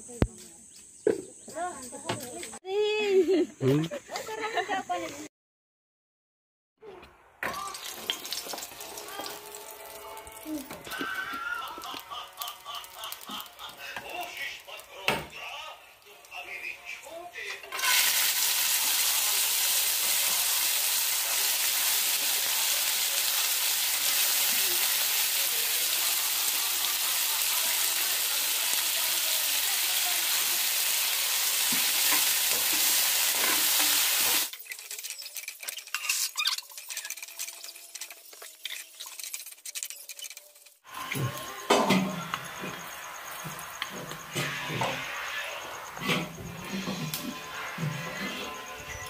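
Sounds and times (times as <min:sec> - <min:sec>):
food sizzling in oil: 0:07.4 - 0:17.0, 0:17.7 - 0:49.0
spatula scraping in pan: 0:17.5 - 0:25.2, 0:30.4 - 0:41.2, 0:41.8 - 0:49.0.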